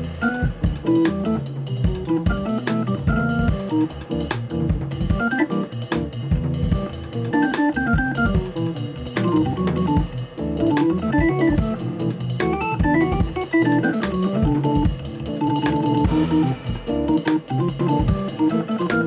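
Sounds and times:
drum kit playing: 0.0s - 19.0s
organ playing jazz runs: 0.0s - 19.0s.

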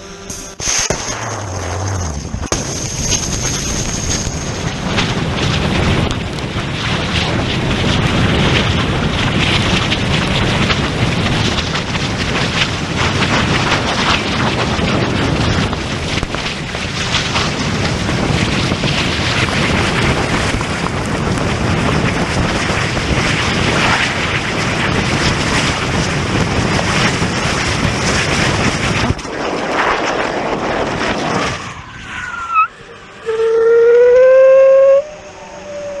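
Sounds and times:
wavering tone rising in pitch: 0.0s - 4.6s, 31.5s - 36.0s
rocket motor roaring: 0.0s - 36.0s
wind buffeting microphone: 1.4s - 36.0s.

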